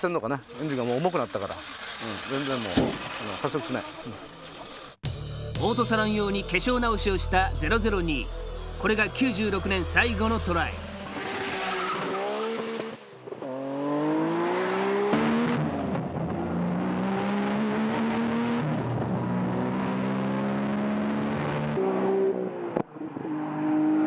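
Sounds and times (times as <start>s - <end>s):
car engine revving at full throttle: 10.9s - 24.0s.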